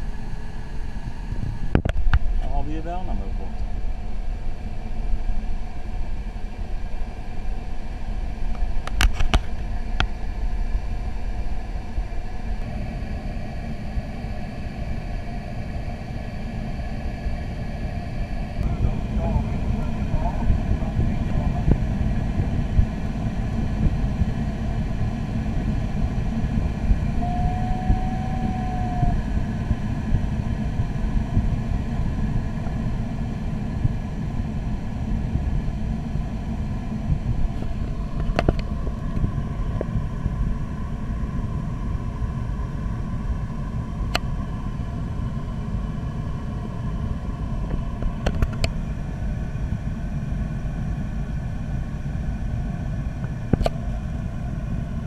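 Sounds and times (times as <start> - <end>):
low rumbling airflow: 0.0 - 55.0
brief tone: 27.2 - 29.2.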